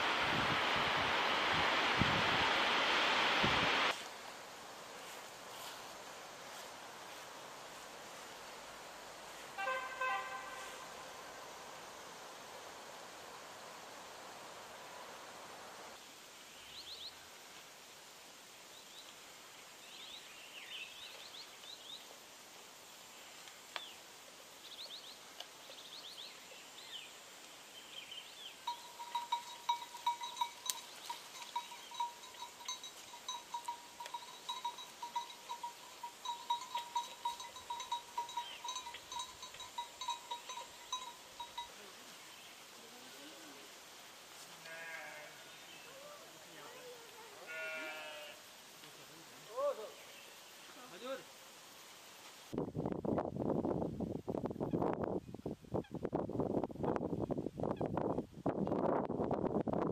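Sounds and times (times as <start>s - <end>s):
goat bleating: 44.6s - 45.4s, 47.4s - 48.4s.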